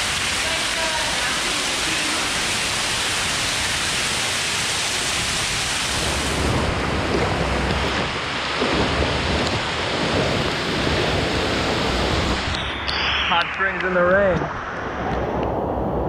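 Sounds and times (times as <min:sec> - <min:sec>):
small waterfall pouring: 0:00.0 - 0:08.4
heavy rain on pool: 0:00.0 - 0:12.6
low rumble: 0:06.1 - 0:16.0.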